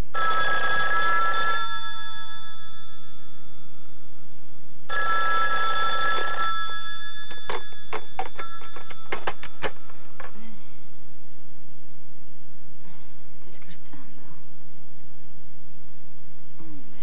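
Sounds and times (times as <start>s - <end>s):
telephone bell ringing: 0.2s - 3.2s, 4.9s - 10.0s.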